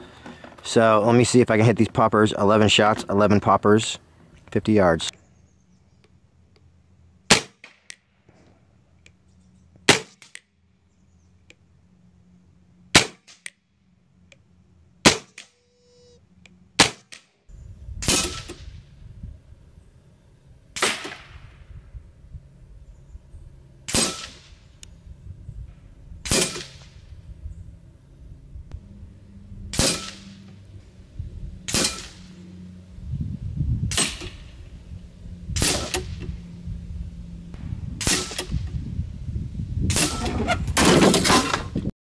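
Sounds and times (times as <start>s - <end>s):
air rifle firing: 7.3s - 8.0s, 9.9s - 10.4s, 12.9s - 13.5s, 15.0s - 15.5s, 16.8s - 17.3s, 18.0s - 18.8s, 20.8s - 21.5s, 23.9s - 24.6s, 26.2s - 27.0s, 29.7s - 30.4s, 31.7s - 32.4s, 33.9s - 34.5s, 35.6s - 36.2s, 38.0s - 38.6s.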